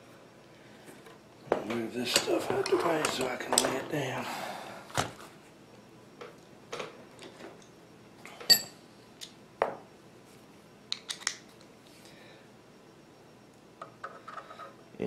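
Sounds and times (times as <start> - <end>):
metal tools clicking and clinking: 8.4 - 8.8
ringing metal clink: 8.5 - 8.8.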